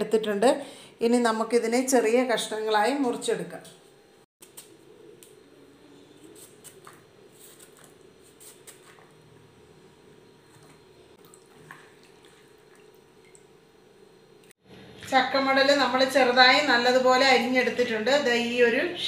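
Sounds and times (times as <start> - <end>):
steady low hum: 2.8 - 19.0
knife cutting fruit rind: 6.2 - 9.1.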